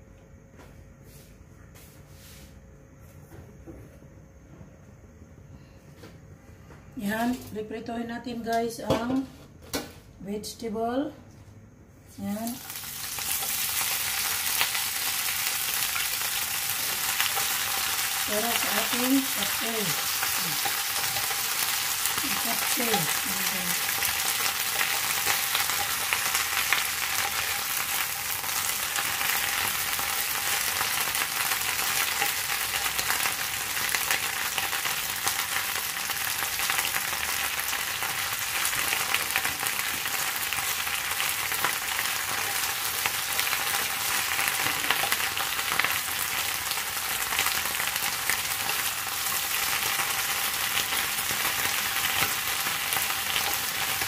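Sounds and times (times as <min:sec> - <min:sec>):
vegetables sizzling in hot oil: 0:12.1 - 0:54.0.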